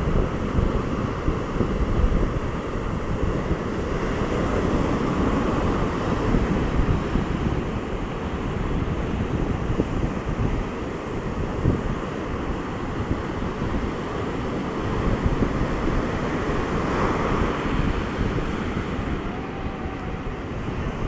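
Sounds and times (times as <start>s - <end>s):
ocean surf breaking on beach: 0.0s - 21.0s
wind buffeting microphone: 0.0s - 21.0s.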